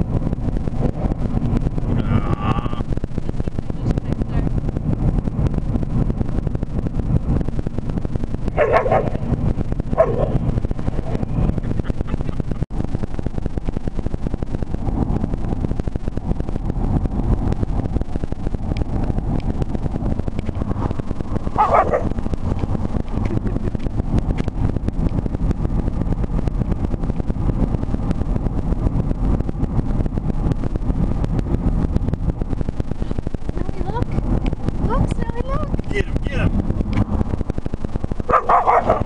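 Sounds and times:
wind buffeting through car windows: 0:00.0 - 0:39.0
dog barking: 0:08.6 - 0:09.2, 0:10.0 - 0:10.4, 0:21.6 - 0:22.1, 0:38.3 - 0:39.0.

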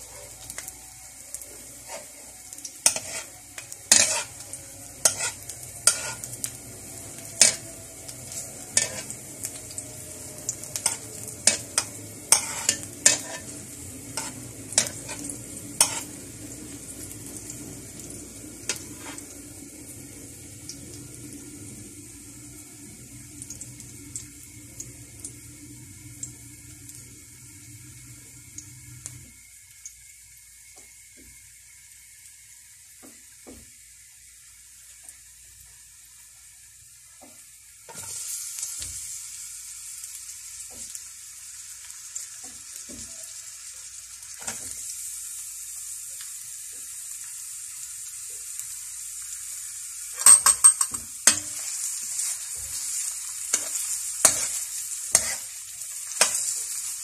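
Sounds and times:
garlic sizzling in hot oil: 0:00.0 - 0:57.0
metal spatula scraping wok: 0:01.8 - 0:06.4, 0:07.4 - 0:07.7, 0:08.3 - 0:09.3, 0:10.7 - 0:16.2, 0:18.7 - 0:19.2, 0:50.2 - 0:55.6, 0:56.2 - 0:56.7.

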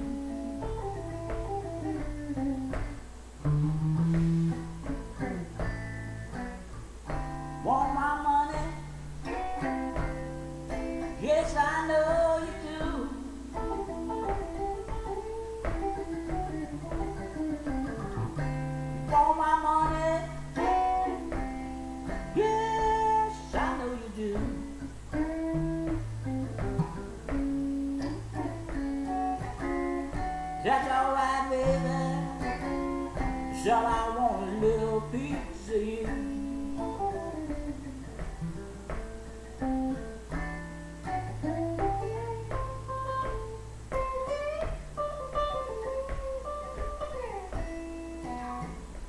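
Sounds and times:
electric guitar melody: 0:00.0 - 0:49.0
low bass note: 0:03.5 - 0:04.6.

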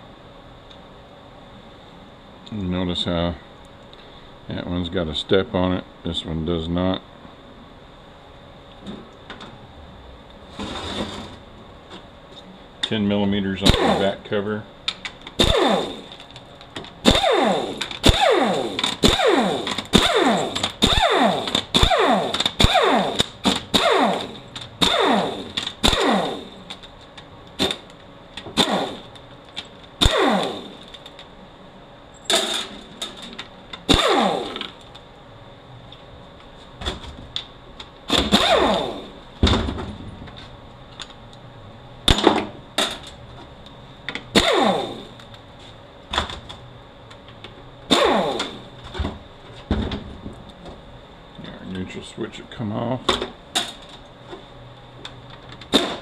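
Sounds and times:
pneumatic ratchet spinning: 0:15.4 - 0:16.2, 0:17.0 - 0:26.7, 0:28.6 - 0:29.1, 0:30.0 - 0:31.0, 0:33.9 - 0:34.8, 0:38.1 - 0:39.1, 0:44.4 - 0:45.1, 0:47.9 - 0:48.7.

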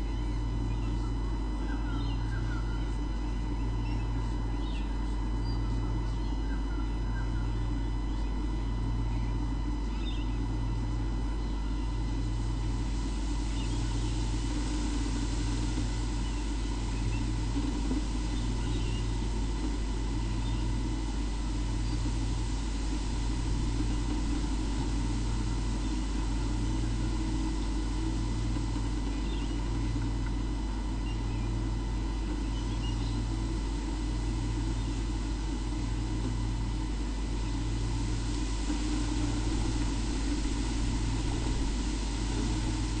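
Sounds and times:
machine hum with low throb: 0:00.0 - 0:43.0
thin whine: 0:00.0 - 0:43.0
faint bird chirps: 0:09.9 - 0:10.4.

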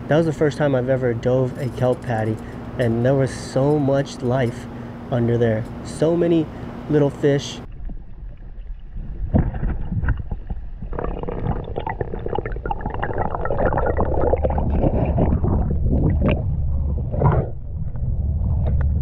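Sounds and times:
low rumble: 0:07.6 - 0:19.0
underwater gurgling and bubbling: 0:07.7 - 0:19.0.

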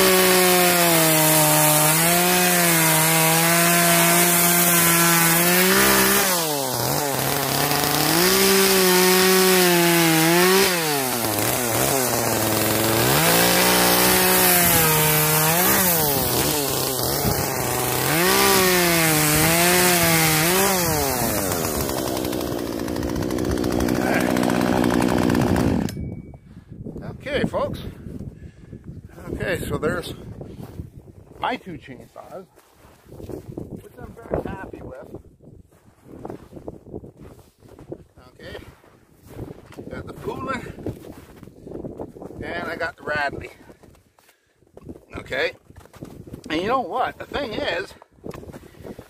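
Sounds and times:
chainsaw cutting through log: 0:00.0 - 0:26.0.

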